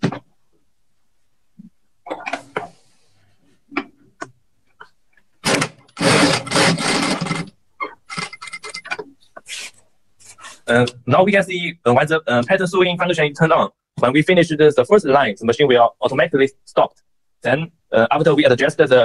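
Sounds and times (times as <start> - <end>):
sewing machine stitching: 5.4 - 7.5.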